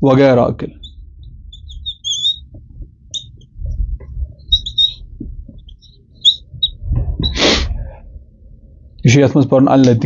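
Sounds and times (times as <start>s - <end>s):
faint low rumble: 0.0s - 9.3s
marker squeaking on whiteboard: 0.7s - 7.6s.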